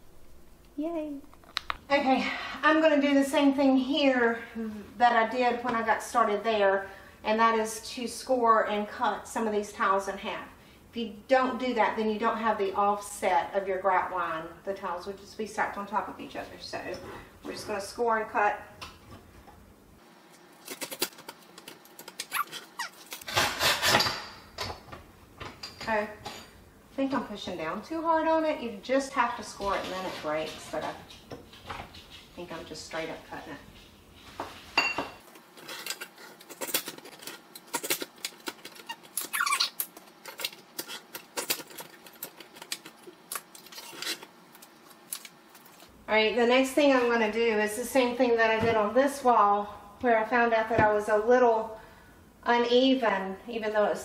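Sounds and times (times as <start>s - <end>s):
short squeaks: 22.2s - 23.2s, 38.8s - 39.9s
tile cutter scraping a tile: 22.4s - 24.1s.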